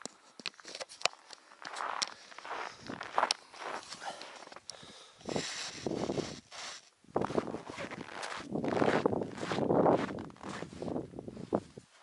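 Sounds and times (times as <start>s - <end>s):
footsteps crunching in frozen snow: 0.6s - 12.0s.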